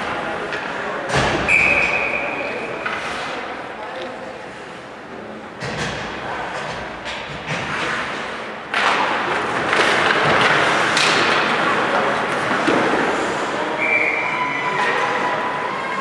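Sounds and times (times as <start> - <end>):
hockey sticks puck and skates: 5.6 - 16.0.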